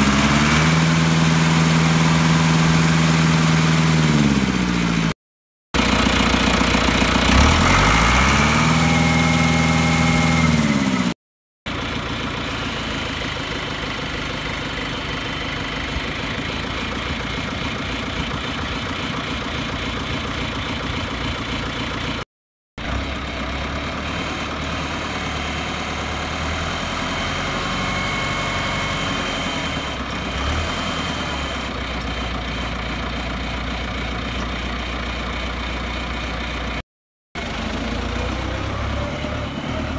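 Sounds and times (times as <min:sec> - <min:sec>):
tractor diesel engine revving: 0:00.0 - 0:05.2, 0:05.8 - 0:22.2, 0:22.8 - 0:36.8, 0:37.4 - 0:39.9.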